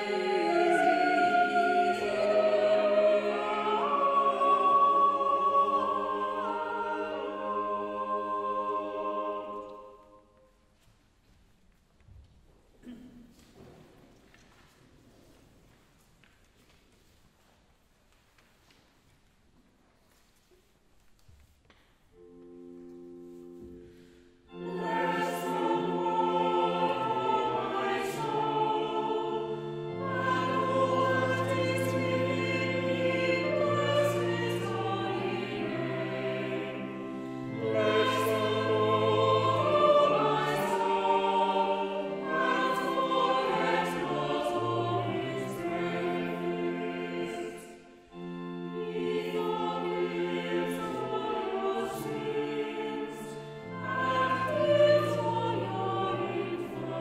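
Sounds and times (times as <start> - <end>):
pipe organ chords: 0.0 - 10.1, 22.1 - 57.0
choir singing: 0.0 - 10.6, 22.2 - 57.0.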